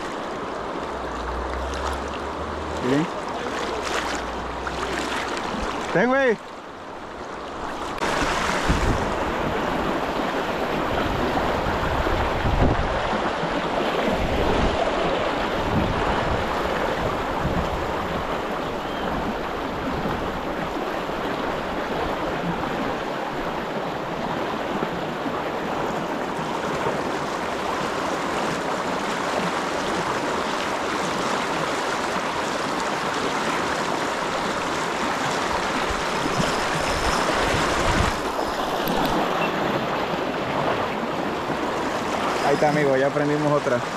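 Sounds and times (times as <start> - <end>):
river rapids over stones: 0.0 - 43.9
wind buffeting microphone: 8.0 - 20.8, 35.5 - 42.3.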